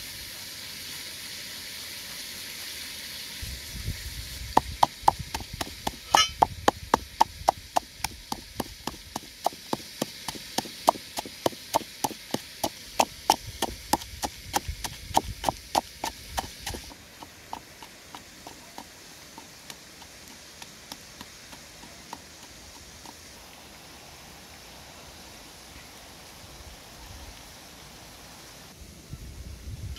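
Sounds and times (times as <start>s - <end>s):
steady hiss: 0.0s - 29.9s
wooden pestle pounding in mortar: 4.6s - 12.4s.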